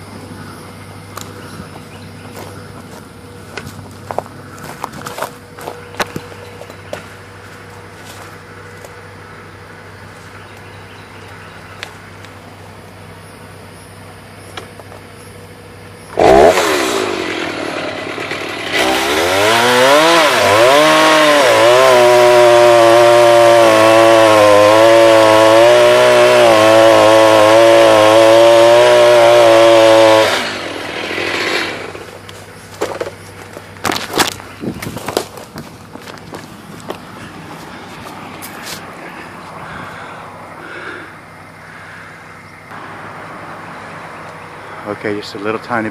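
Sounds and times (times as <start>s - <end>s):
chainsaw revving: 16.1s - 32.3s.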